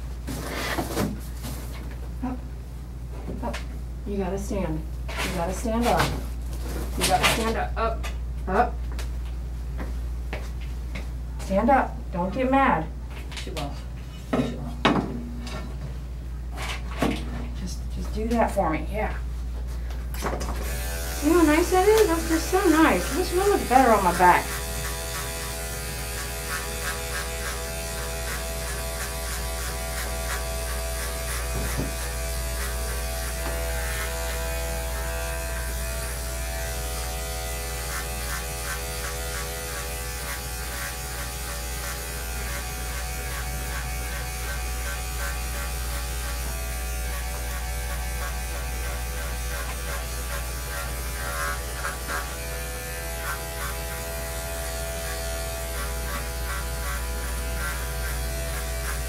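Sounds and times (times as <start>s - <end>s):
electric clippers buzzing: 20.6s - 59.0s.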